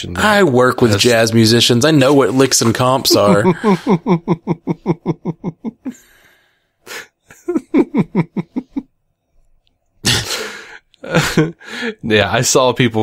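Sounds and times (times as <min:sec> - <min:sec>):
person laughing: 0:03.1 - 0:06.0, 0:06.9 - 0:08.9, 0:10.0 - 0:11.6.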